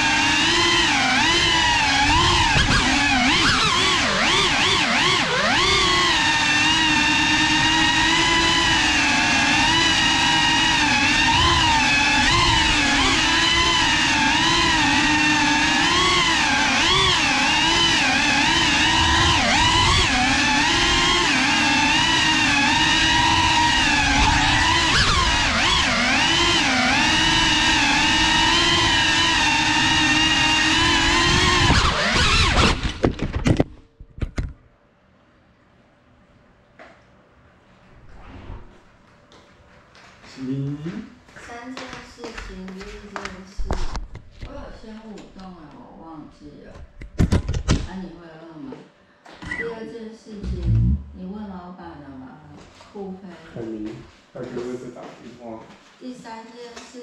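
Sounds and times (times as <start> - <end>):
drone motors whining: 0.0 - 33.2, 49.4 - 51.6
drone crash clattering: 50.4 - 51.6.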